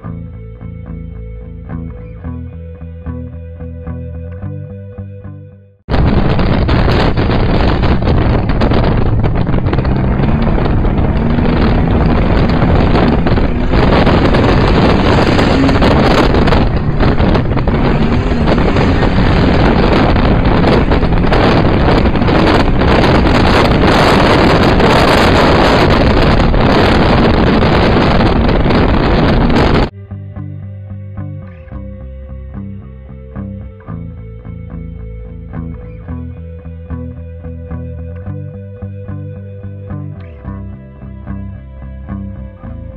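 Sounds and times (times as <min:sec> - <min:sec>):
car engine running hard: 0:05.9 - 0:29.9
rush of wind: 0:05.9 - 0:30.0.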